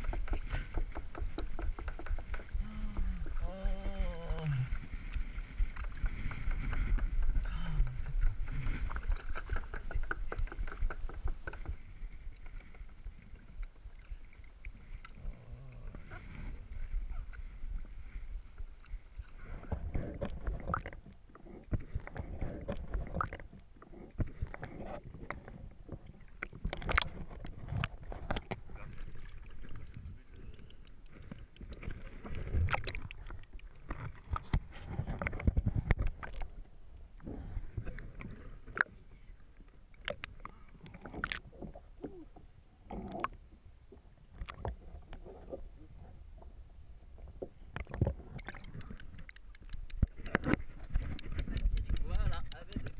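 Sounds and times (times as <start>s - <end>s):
wind rumble on microphone: 0.0s - 13.7s, 34.0s - 38.5s, 49.8s - 52.9s
paddle strokes: 0.0s - 43.3s
water splashing against hull: 0.0s - 52.9s.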